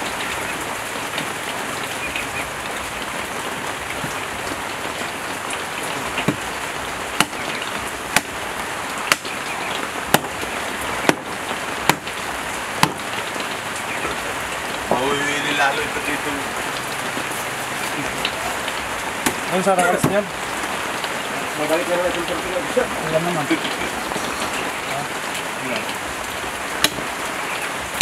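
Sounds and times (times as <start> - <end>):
rain hissing: 0.0 - 28.0
knife chopping carcass on table: 12.8 - 13.0.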